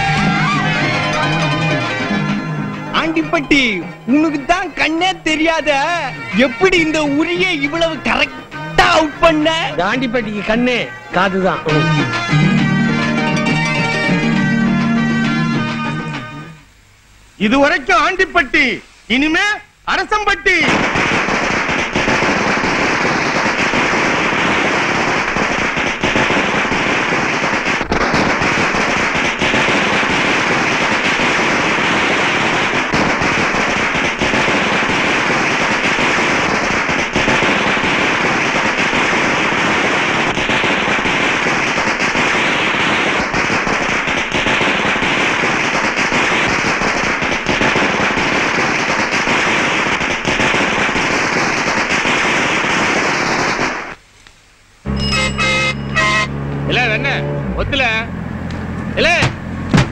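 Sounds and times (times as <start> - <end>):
firecrackers crackling: 0.0 - 16.8, 17.4 - 54.0, 58.5 - 59.9.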